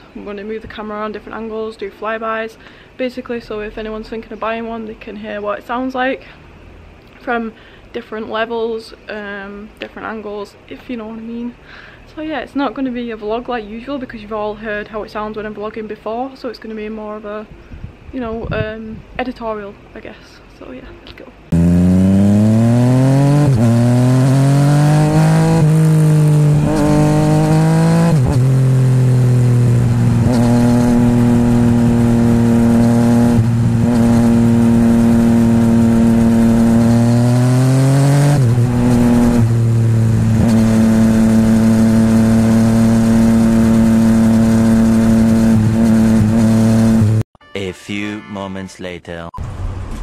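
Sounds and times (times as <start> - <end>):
motorcycle engine accelerating: 21.5 - 47.2.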